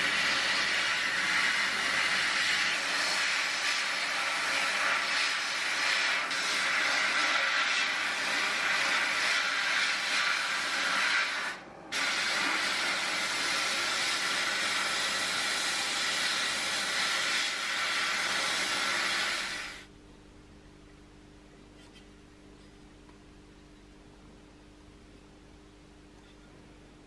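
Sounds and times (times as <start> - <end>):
faint low hum: 19.9 - 27.0.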